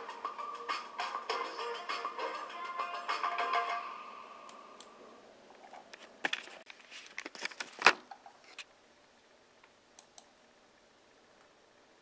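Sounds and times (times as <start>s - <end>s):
background music: 0.0s - 4.7s.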